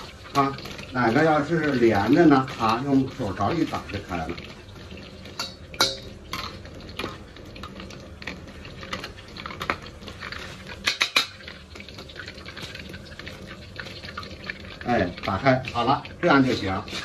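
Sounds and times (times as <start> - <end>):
hot oil sizzling: 0.0 - 17.0
ladle clinking against metal: 5.4 - 6.6.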